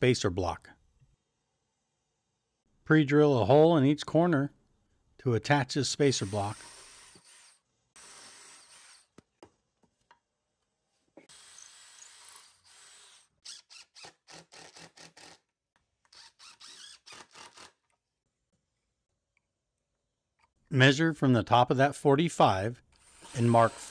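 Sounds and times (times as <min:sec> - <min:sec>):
cordless drill boring into wood: 0:06.0 - 0:09.2, 0:11.3 - 0:15.4, 0:16.1 - 0:17.8, 0:23.0 - 0:23.9.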